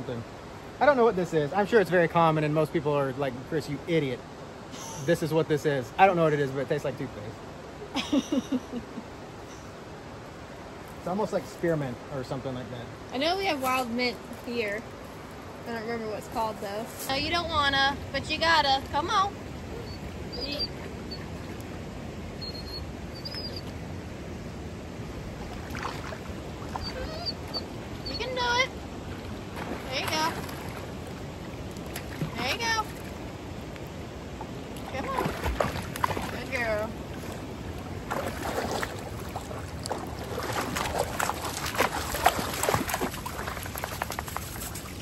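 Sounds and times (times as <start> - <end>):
river flowing: 0.0 - 45.0
dog splashing through water: 25.4 - 27.2, 29.5 - 31.1, 34.8 - 45.0.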